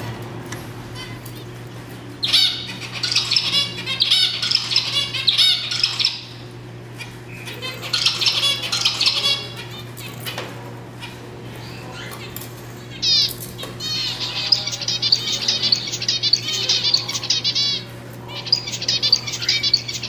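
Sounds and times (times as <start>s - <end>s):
steady low hum: 0.0s - 20.0s
finches calling: 2.2s - 6.4s, 7.3s - 10.0s, 12.9s - 20.0s.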